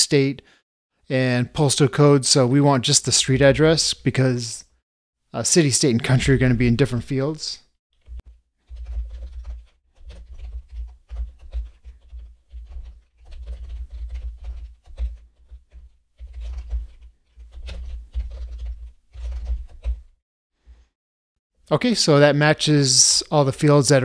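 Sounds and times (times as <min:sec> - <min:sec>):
typing on computer keyboard: 0:08.7 - 0:20.1.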